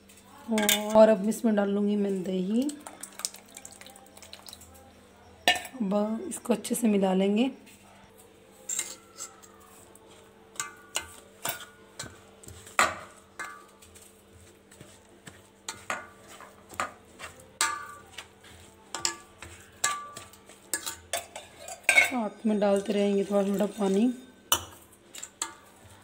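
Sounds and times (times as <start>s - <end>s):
spoon scraping steel bowl: 8.6s - 14.0s, 14.8s - 25.7s.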